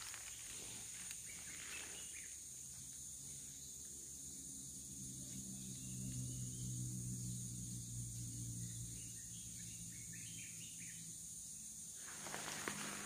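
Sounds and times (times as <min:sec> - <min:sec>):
leaf litter rustling: 0:00.0 - 0:02.0, 0:12.0 - 0:13.0
insects buzzing: 0:00.0 - 0:13.0.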